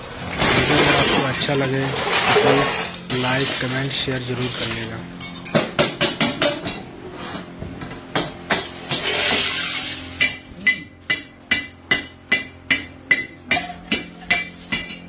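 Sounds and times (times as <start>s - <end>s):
scrap metal clattering down: 0.2s - 5.5s
ringing metal strikes: 10.2s - 15.0s.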